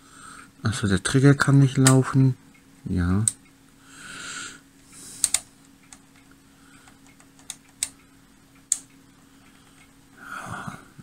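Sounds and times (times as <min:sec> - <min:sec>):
faint steady hum: 0:00.0 - 0:11.0
oscilloscope switches clicking: 0:01.7 - 0:03.8, 0:05.2 - 0:10.0.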